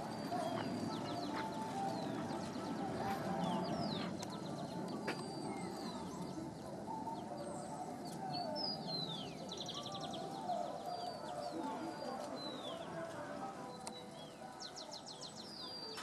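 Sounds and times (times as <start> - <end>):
birds chirping: 0.0 - 16.0
low background noise: 0.0 - 16.0.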